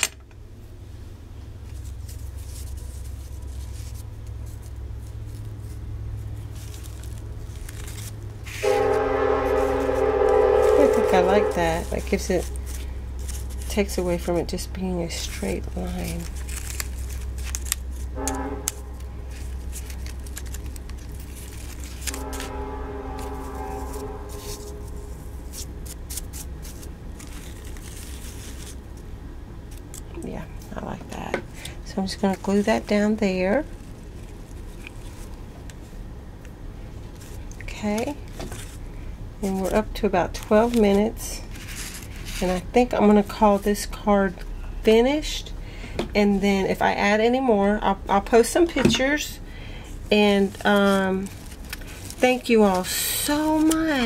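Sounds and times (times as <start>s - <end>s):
steady low hum: 0.0s - 54.0s
paper rustling: 1.6s - 29.0s, 32.1s - 36.0s, 37.0s - 42.7s, 50.2s - 54.0s
train rumbling: 6.0s - 16.2s, 20.8s - 27.6s
train horn chord: 8.5s - 12.2s, 18.1s - 19.4s, 22.0s - 25.6s.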